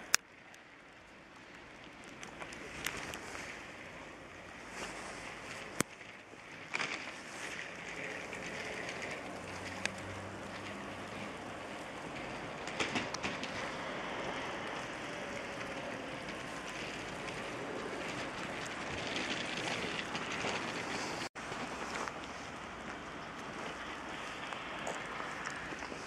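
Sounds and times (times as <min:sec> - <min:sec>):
wet street hiss: 0:00.0 - 0:26.0.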